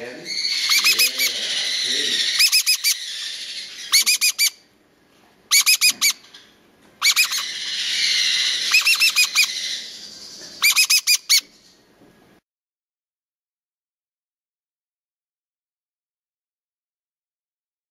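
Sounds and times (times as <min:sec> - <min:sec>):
parrot chick chirping: 0:00.2 - 0:04.6, 0:05.5 - 0:06.4, 0:07.0 - 0:11.6.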